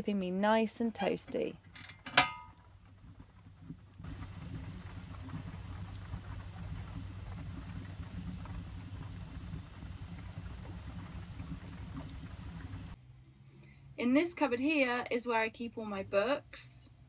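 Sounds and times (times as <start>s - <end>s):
logs crackling in stove: 0.0s - 13.0s
steady rain: 2.8s - 13.0s.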